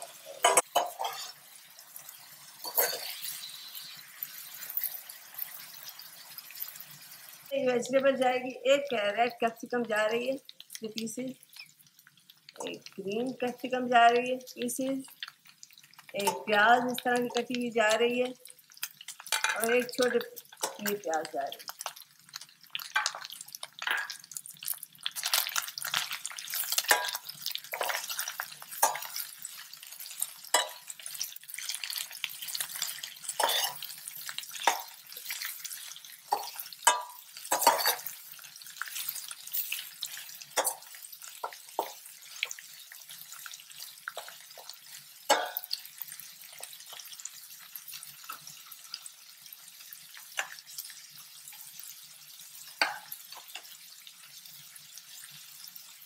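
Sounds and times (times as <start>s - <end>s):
metal ladle scraping a pan: 0.0s - 1.4s, 2.6s - 5.5s, 32.8s - 33.9s, 34.6s - 38.2s
food frying sizzle: 0.0s - 56.0s.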